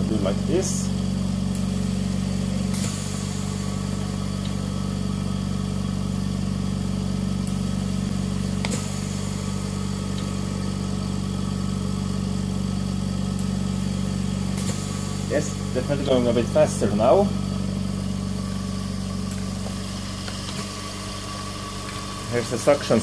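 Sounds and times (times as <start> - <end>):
compressor humming: 0.0 - 23.0
valve clicks: 1.4 - 1.8, 2.6 - 4.7, 7.4 - 10.8, 13.3 - 13.6, 14.5 - 16.4, 19.2 - 22.5.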